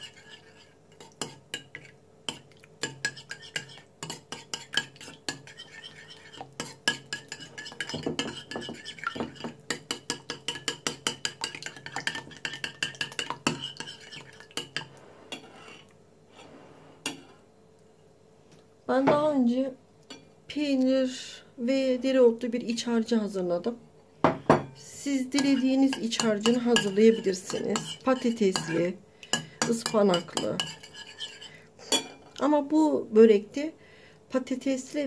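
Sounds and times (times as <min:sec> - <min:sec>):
utensil clinking against bowl: 0:25.4 - 0:32.2.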